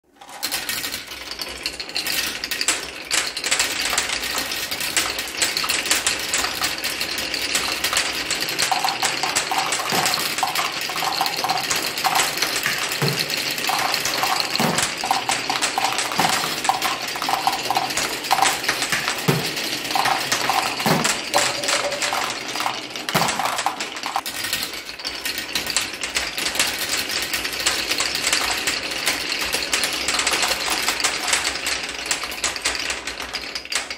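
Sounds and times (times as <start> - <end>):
marbles clattering on wooden chutes: 0.0 - 33.9
marbles spilling into plastic truck: 0.1 - 25.8
heavy knocks: 8.6 - 24.2.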